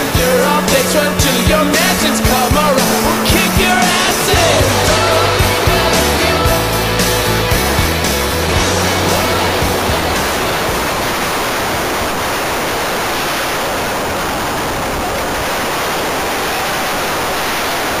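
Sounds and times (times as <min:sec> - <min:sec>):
wind rush: 0:08.2 - 0:17.4.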